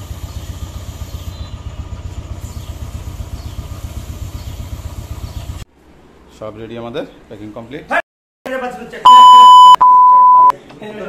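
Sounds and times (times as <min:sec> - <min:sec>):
motorcycle engine idling: 0:00.0 - 0:05.6.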